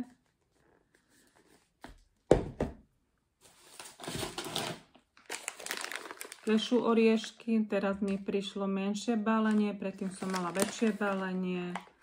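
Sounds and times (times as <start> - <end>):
plastic snack bag rustling: 3.5 - 8.2, 9.4 - 12.0.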